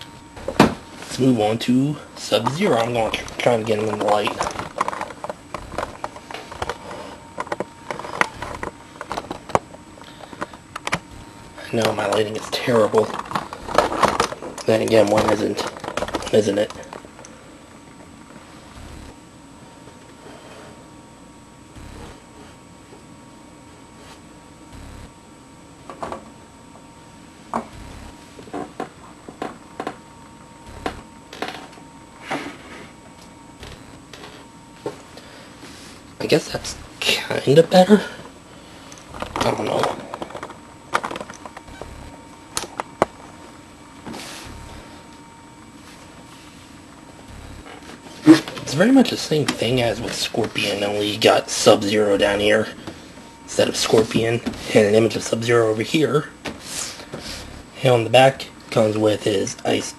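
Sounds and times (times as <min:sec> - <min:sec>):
dull low thumps: 0:00.4 - 0:00.9, 0:03.0 - 0:03.5, 0:05.6 - 0:06.2, 0:08.2 - 0:08.8, 0:11.0 - 0:11.7, 0:13.5 - 0:14.2, 0:18.7 - 0:19.2, 0:21.8 - 0:22.3, 0:24.7 - 0:25.2, 0:27.7 - 0:28.4, 0:30.7 - 0:31.2, 0:33.6 - 0:34.2, 0:36.6 - 0:37.0, 0:39.1 - 0:39.6, 0:41.6 - 0:42.3, 0:44.4 - 0:45.1, 0:47.2 - 0:47.8, 0:49.7 - 0:50.2, 0:57.4 - 0:57.8.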